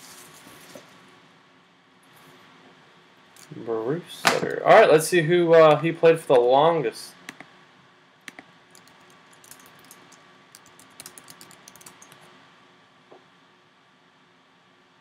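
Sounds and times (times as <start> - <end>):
keyboard key clicks: 10.6 - 12.2.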